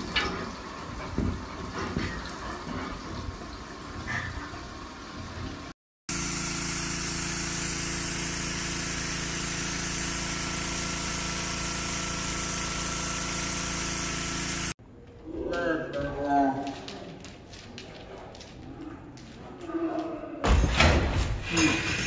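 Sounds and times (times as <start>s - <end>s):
pressure washer droning: 0.0s - 14.8s
spray jet hissing: 6.1s - 14.8s.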